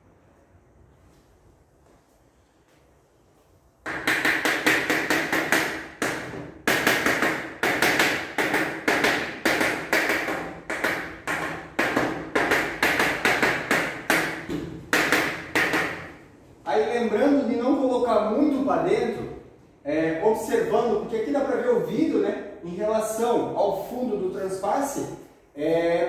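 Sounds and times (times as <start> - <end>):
rapid knocks on aluminium profile: 3.9 - 16.2.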